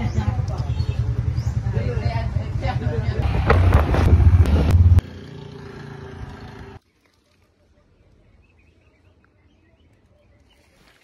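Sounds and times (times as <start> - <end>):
motorcycle engine: 0.0 - 6.8
road noise: 0.0 - 7.0.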